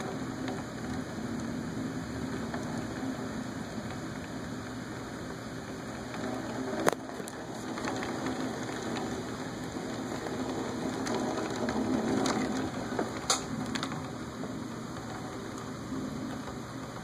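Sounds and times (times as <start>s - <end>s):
rain: 0.0s - 17.0s.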